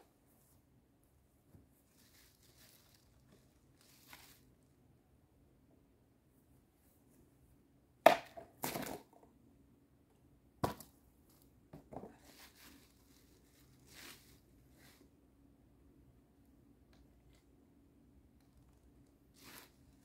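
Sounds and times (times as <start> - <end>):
plastic rustling: 1.8 - 4.6, 12.1 - 14.4, 19.3 - 20.0.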